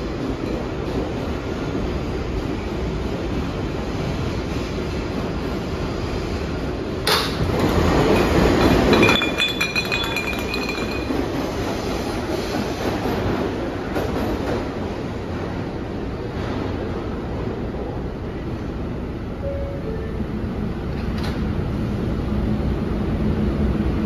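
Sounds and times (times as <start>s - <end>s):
subway train rumbling: 0.0s - 24.0s
train rattling clicks: 6.9s - 15.5s.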